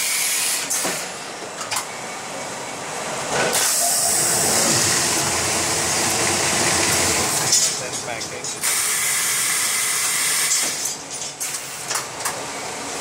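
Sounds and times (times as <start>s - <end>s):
loud hiss of air: 3.5s - 4.8s, 8.6s - 10.8s
machine running: 3.5s - 10.6s.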